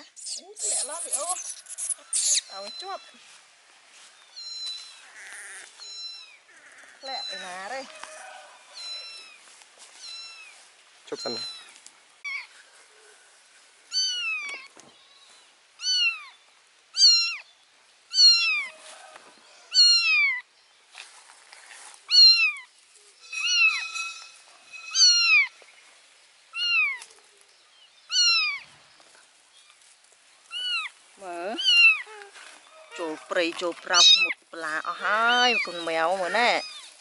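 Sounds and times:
kitten meowing: 4.4s - 7.6s, 8.8s - 9.4s, 10.0s - 10.5s, 11.2s - 12.5s, 13.9s - 14.7s, 15.8s - 16.3s, 17.0s - 17.4s, 18.1s - 18.7s, 19.7s - 20.4s, 22.1s - 22.7s, 24.8s - 25.5s, 26.6s - 27.0s, 28.1s - 28.6s, 30.5s - 30.9s, 31.6s - 32.3s, 33.9s - 36.9s.

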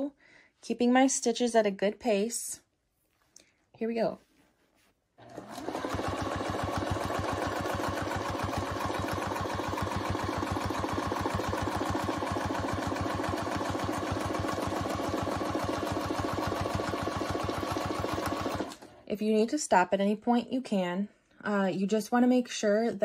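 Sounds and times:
sewing machine stitching: 5.2s - 19.0s.

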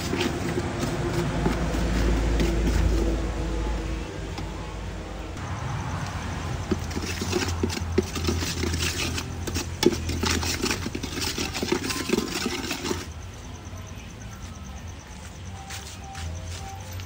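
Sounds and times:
metal ladle scraping a wok: 0.0s - 3.3s, 6.6s - 13.1s.

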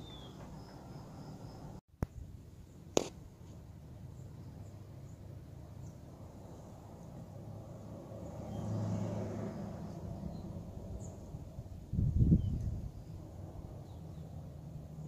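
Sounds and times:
vehicle passing: 4.7s - 12.0s.

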